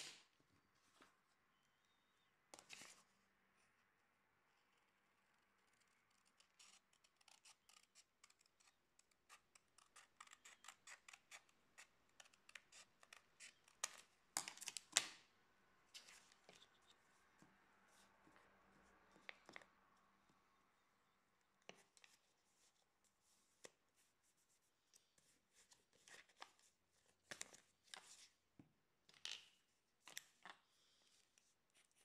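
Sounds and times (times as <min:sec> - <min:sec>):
scissors snipping paper: 0:05.7 - 0:15.2.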